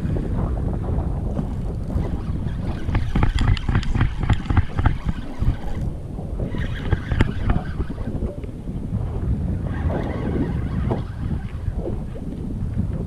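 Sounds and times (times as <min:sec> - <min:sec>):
wind rumbling on microphone: 0:00.0 - 0:13.0
sharp irregular clicks: 0:02.8 - 0:05.9.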